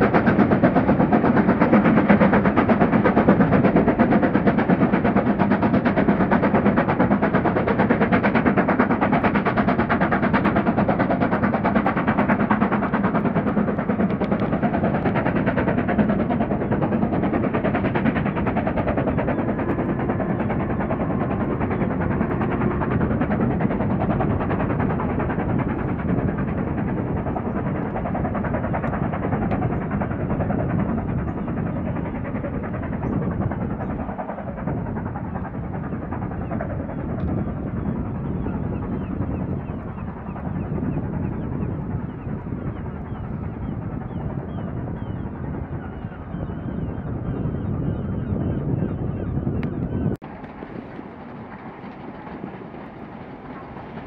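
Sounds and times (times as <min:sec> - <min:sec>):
steam locomotive chuffing: 0:00.0 - 0:45.8.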